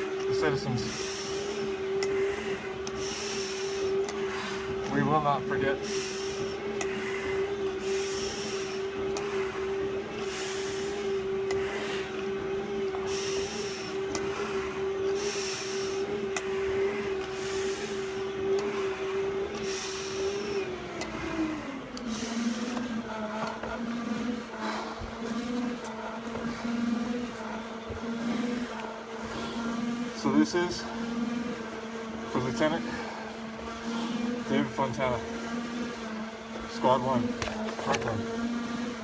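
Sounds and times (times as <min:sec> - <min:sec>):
machine motor humming: 0:00.0 - 0:39.0
breathing through respirator mask: 0:00.8 - 0:04.8, 0:05.8 - 0:20.7, 0:24.5 - 0:25.4.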